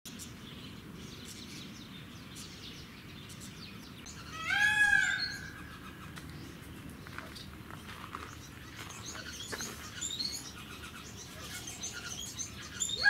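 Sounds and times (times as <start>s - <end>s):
birds chirping faintly: 0.1s - 13.0s
loud rising and falling bird call: 4.1s - 6.2s.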